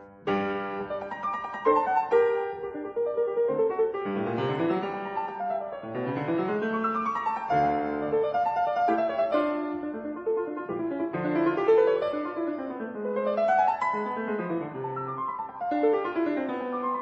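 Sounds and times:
solo piano music: 0.0 - 17.0.

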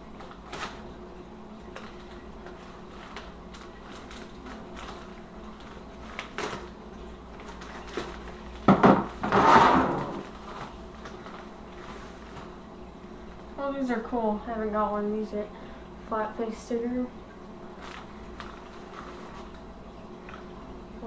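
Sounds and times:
plastic rustling: 0.0 - 13.5, 17.6 - 20.7
plastic mailer crinkling: 1.6 - 9.2, 10.1 - 12.6, 17.7 - 20.5.

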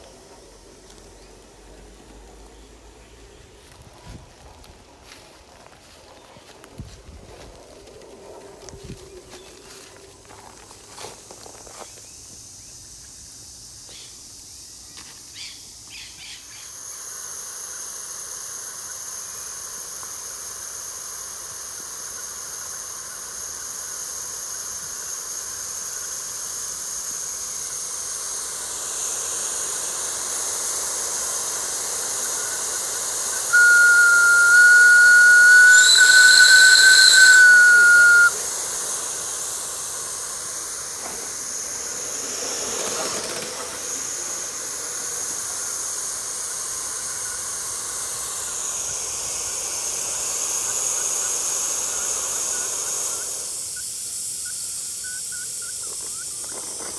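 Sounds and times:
steam hissing: 0.0 - 56.9
steam whistle blowing: 31.3 - 41.6.

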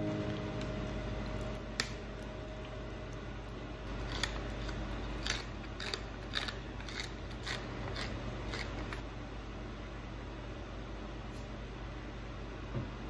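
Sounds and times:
pepper mill grinding: 3.1 - 9.1.

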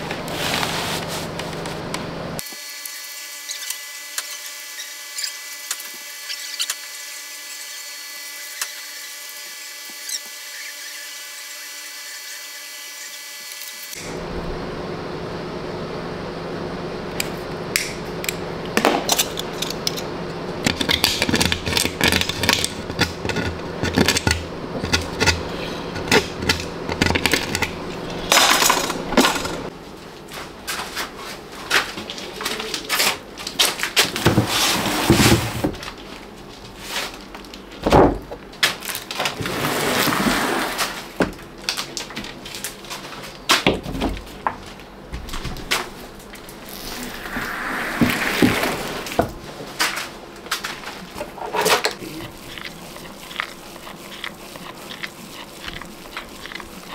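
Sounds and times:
steady hum: 14.0 - 30.0.

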